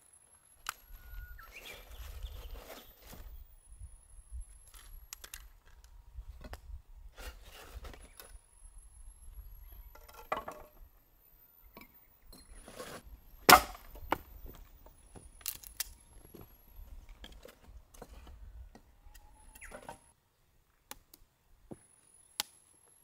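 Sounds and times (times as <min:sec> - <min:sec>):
kindling and paper scraping: 0:01.5 - 0:03.4.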